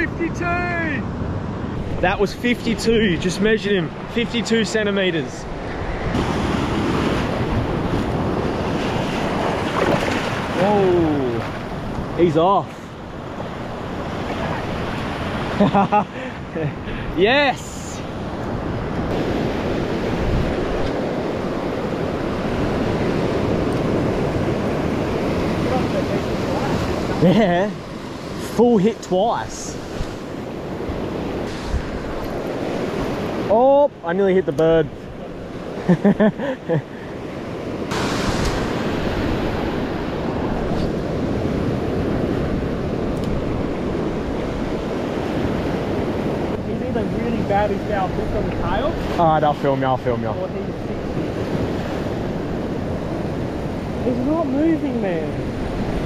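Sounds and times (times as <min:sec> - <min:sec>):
surf breaking on sand: 0:00.0 - 0:33.9, 0:35.1 - 0:56.0
wind buffeting microphone: 0:05.2 - 0:15.6, 0:18.0 - 0:27.2, 0:29.7 - 0:33.5, 0:37.1 - 0:56.0.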